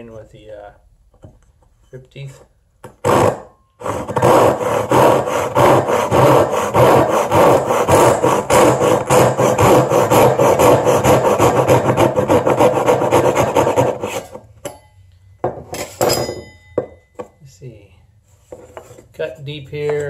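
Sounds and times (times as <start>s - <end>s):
hand saw cutting wood: 3.0s - 14.4s.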